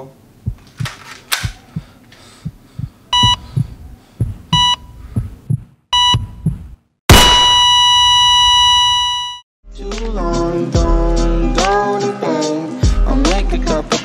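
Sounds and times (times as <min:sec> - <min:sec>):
fast heartbeat: 0:00.4 - 0:06.8
heart monitor beeping: 0:00.5 - 0:09.4
flatline tone: 0:06.0 - 0:09.4
loud gunshot bang: 0:07.1 - 0:07.7.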